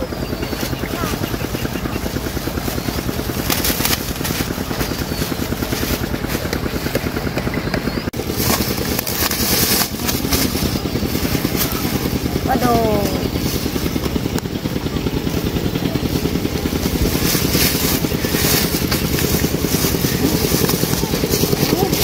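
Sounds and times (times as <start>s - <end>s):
small engine running: 0.0s - 22.0s.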